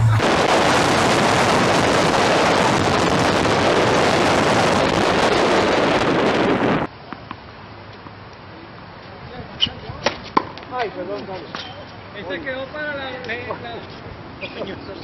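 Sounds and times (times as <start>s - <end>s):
wind buffeting microphone: 0.2s - 6.9s.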